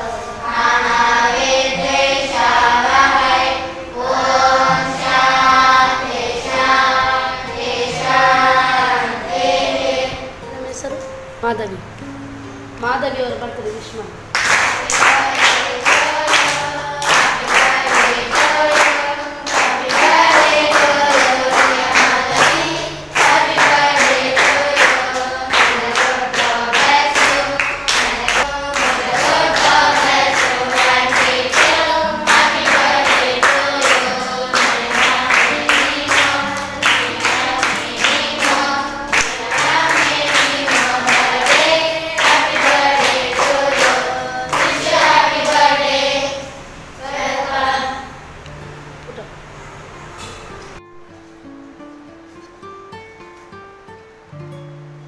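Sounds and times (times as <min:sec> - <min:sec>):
girls singing in unison: 0:00.0 - 0:10.5, 0:14.4 - 0:48.3
people clapping to a beat: 0:14.3 - 0:46.4.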